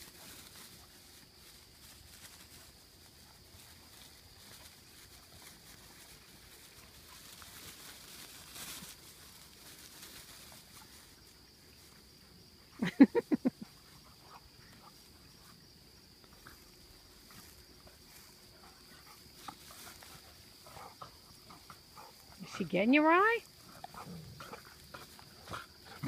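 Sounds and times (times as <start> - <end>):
dogs scuffling on grass: 0.0 - 26.0
dogs barking and growling: 23.6 - 26.0.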